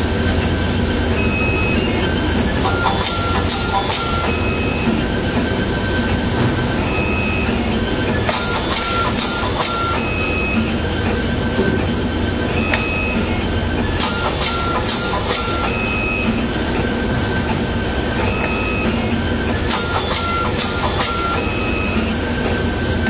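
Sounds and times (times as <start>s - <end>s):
machine motor whines: 0.0s - 23.0s
steady mechanical noise: 0.0s - 23.0s
sharp mechanical clicks: 8.1s - 10.1s.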